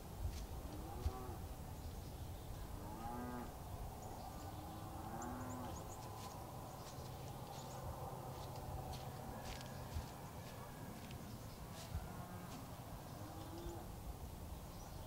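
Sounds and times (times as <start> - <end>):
distant cattle mooing: 0.6 - 1.4, 2.6 - 3.6, 4.2 - 6.0, 11.9 - 13.9.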